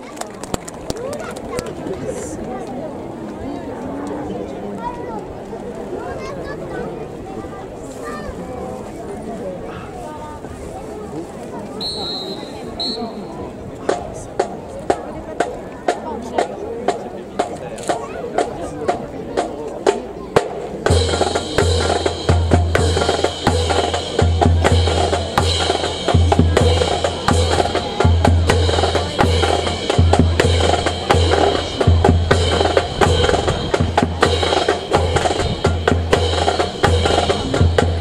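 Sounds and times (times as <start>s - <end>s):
music with drum beat: 13.8s - 38.0s.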